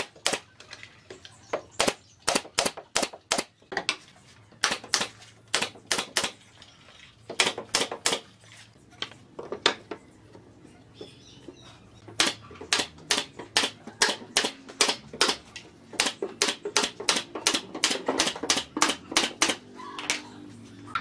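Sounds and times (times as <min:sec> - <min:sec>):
hammer striking wood: 0:07.3 - 0:08.2, 0:12.2 - 0:15.4, 0:16.0 - 0:19.6.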